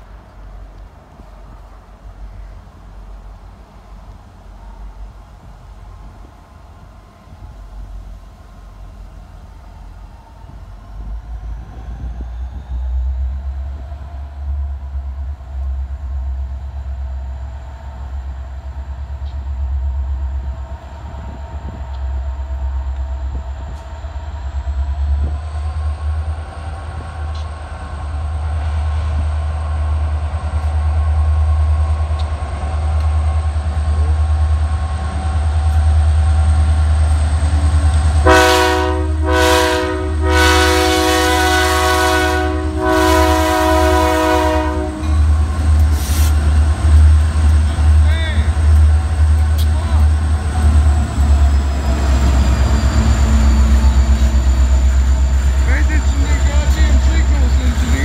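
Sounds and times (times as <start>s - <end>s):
diesel locomotive engine rumble: 0.0s - 58.0s
locomotive air horn blasts: 38.2s - 45.3s.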